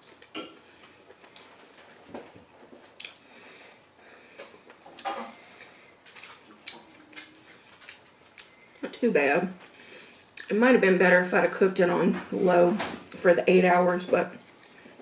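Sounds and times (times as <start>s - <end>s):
chewing: 0.0s - 8.7s.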